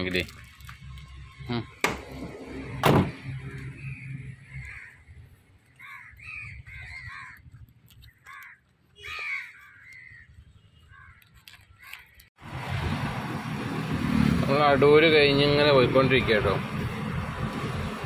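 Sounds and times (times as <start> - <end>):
crows cawing: 4.4 - 12.3.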